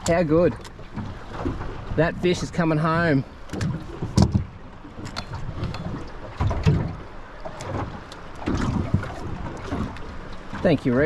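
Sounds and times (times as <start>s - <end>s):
gear knocking in aluminium boat: 2.6s - 10.8s.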